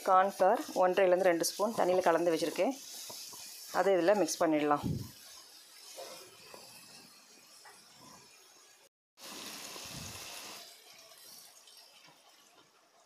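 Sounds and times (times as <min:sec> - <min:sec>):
vegetables sizzling in a pan: 0:00.0 - 0:13.0
spatula stirring: 0:00.6 - 0:08.7.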